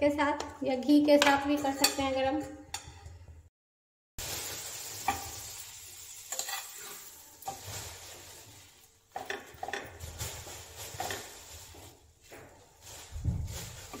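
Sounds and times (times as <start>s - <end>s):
bread sizzling in frying pan: 4.2s - 9.7s
knocks and scrapes against pan: 9.1s - 10.0s.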